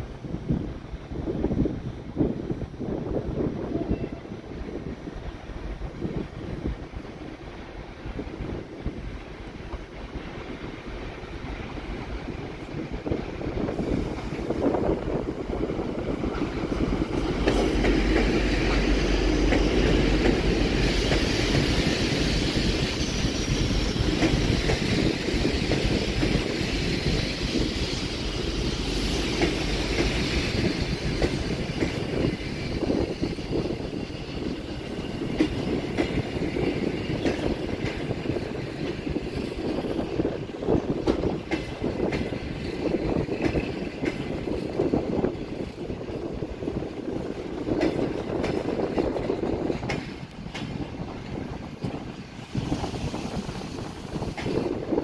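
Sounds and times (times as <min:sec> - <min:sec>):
diesel locomotive engine rumble: 0:00.0 - 0:55.0
wheels clicking over rail joints: 0:29.3 - 0:55.0.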